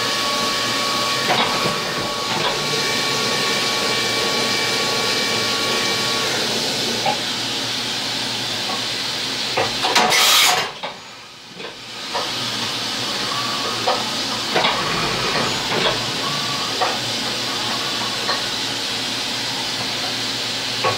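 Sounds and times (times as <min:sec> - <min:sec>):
milling machine cutting metal: 0:00.0 - 0:07.3, 0:13.0 - 0:20.0
hiss of coolant spray: 0:02.6 - 0:20.9.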